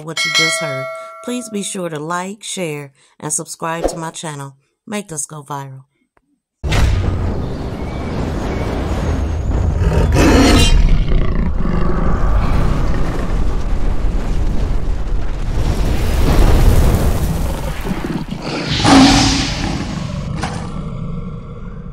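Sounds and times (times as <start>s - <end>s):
big cat roar: 9.8s - 13.5s, 17.9s - 21.9s.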